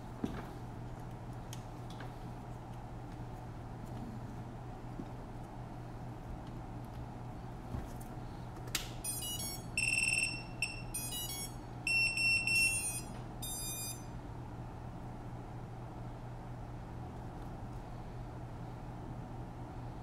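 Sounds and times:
high motor startup beeps: 9.0 - 14.1.

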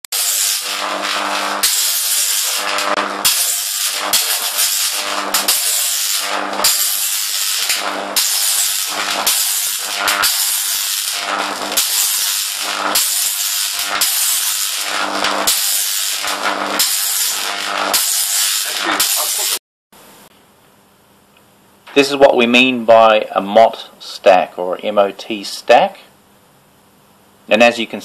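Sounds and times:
electric arc hissing and crackling: 0.1 - 19.6
low mains buzz: 0.2 - 17.9, 18.6 - 28.0.

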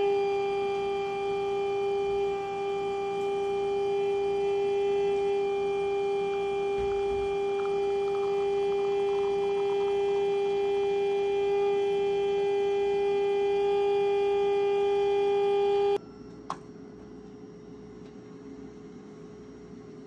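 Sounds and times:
espresso machine pump humming: 0.0 - 16.0.

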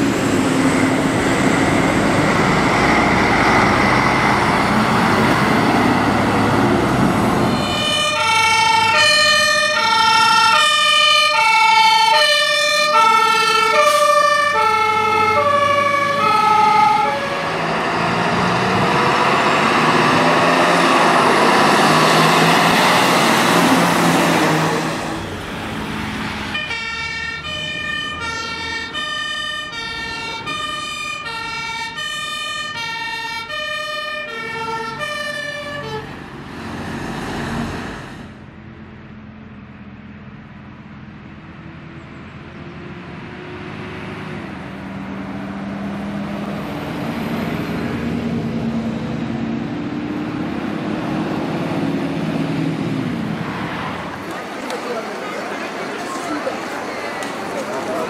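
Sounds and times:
two-tone fire truck siren: 0.0 - 36.6
passing vehicle engine and road noise: 0.0 - 58.0
quieter two-tone siren: 7.5 - 17.8, 26.4 - 36.2.

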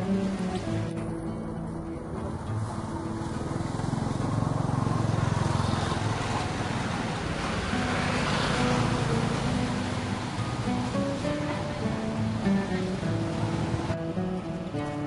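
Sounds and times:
vehicle engine passing by: 2.2 - 14.1.

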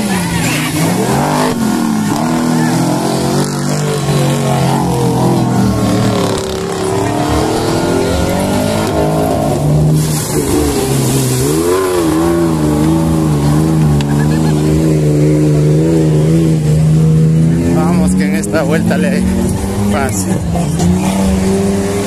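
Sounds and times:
truck engine revving: 0.0 - 22.0.

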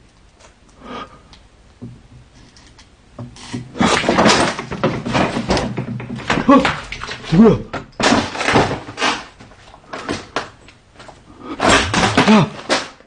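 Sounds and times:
objects rustling and knocking: 1.7 - 13.0.

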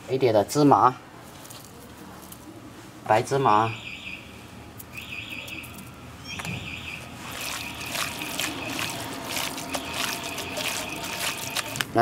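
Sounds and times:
wet squelching of raw meat: 7.1 - 11.9.

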